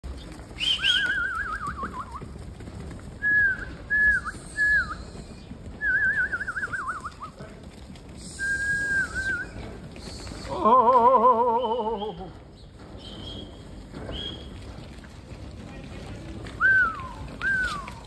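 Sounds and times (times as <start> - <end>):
person whistling: 3.2 - 5.1, 5.8 - 7.2, 8.4 - 9.5, 16.6 - 18.0.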